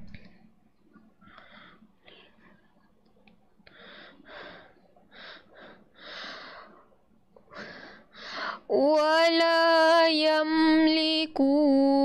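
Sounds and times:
girl breathing: 1.2s - 2.7s, 3.7s - 8.7s.

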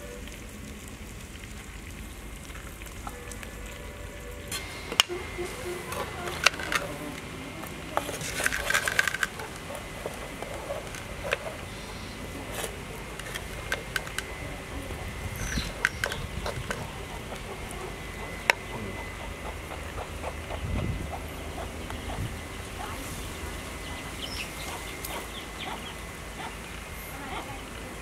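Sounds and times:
wooden spoon scraping clay pot: 5.0s - 11.8s.

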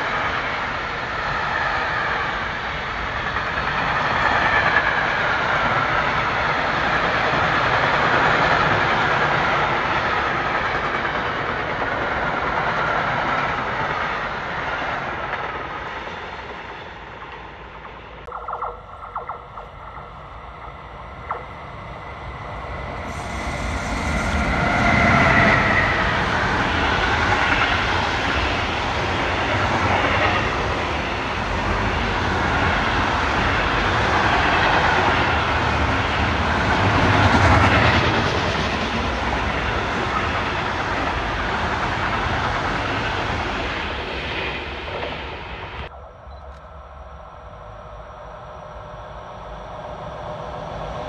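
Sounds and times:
freight train passing: 0.0s - 51.0s
wheel-on-rail noise: 17.1s - 45.9s
locomotive falling tones: 18.3s - 26.7s.

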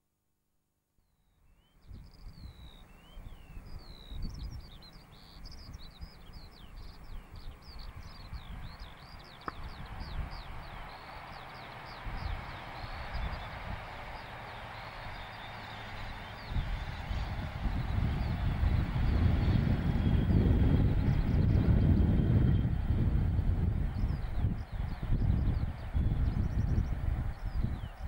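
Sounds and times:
small birds chirping and trilling: 1.5s - 22.6s
low uneven rumble: 5.6s - 28.0s
approaching train rushing: 7.9s - 28.0s.

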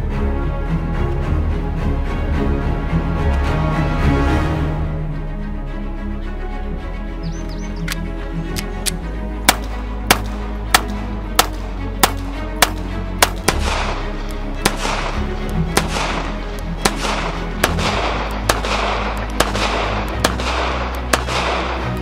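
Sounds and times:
background music: 0.0s - 22.0s
pistol shots with echo: 9.5s - 22.0s.

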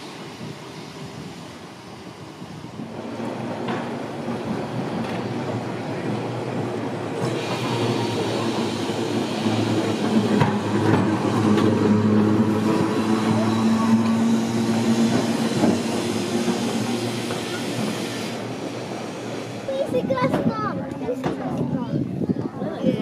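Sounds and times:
electric tram passing: 0.0s - 22.2s.

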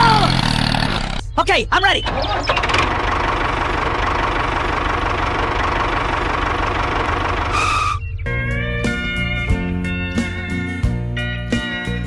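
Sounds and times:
tractor engine running: 0.0s - 12.0s
guitar music: 8.2s - 12.0s.

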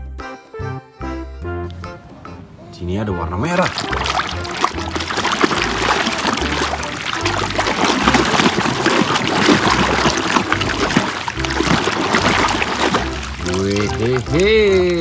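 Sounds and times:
muddy water sloshing: 3.5s - 15.0s
small wet clicks: 3.6s - 15.0s.

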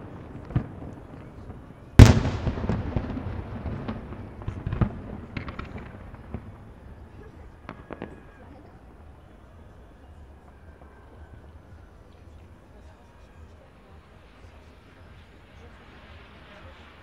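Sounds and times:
fireworks popping and crackling: 0.0s - 9.8s, 10.5s - 17.0s
fireworks bursting: 0.0s - 17.0s
loud bang with rumbling echo: 2.0s - 6.4s.

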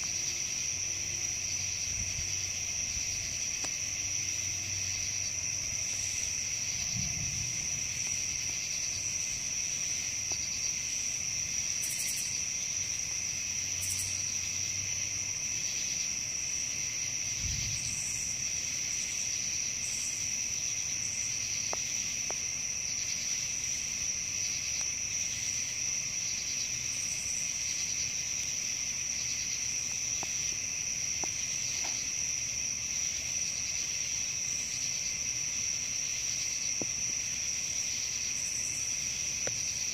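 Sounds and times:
crickets and insects chirping: 0.0s - 39.9s.

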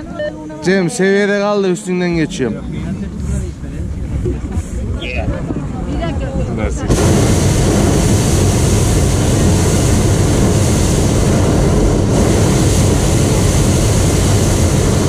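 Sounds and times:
propane burner blast: 6.7s - 15.0s.

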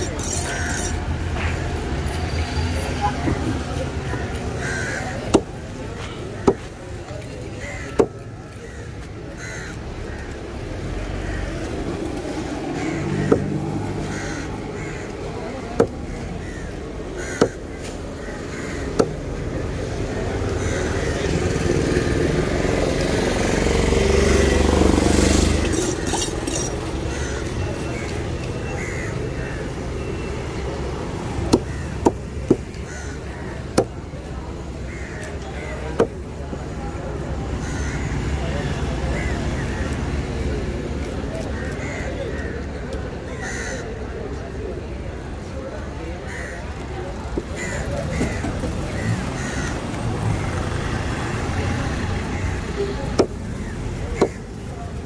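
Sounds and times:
crows cawing: 0.0s - 1.6s, 4.1s - 5.5s, 7.6s - 10.5s, 12.8s - 19.3s, 20.5s - 21.3s, 25.6s - 29.7s, 31.5s - 34.0s, 34.8s - 36.1s, 37.6s - 38.3s, 43.3s - 44.0s, 46.2s - 46.8s, 47.4s - 49.8s, 52.4s - 54.6s
road traffic rumble: 0.0s - 55.0s.

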